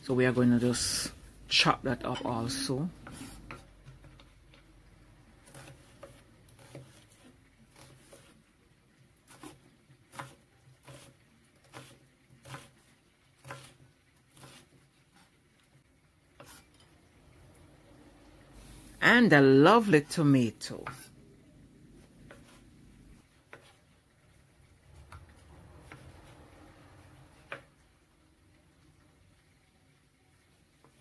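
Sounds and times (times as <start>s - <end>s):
knife chopping on wooden board: 5.4s - 7.2s, 9.3s - 12.8s, 13.4s - 13.8s.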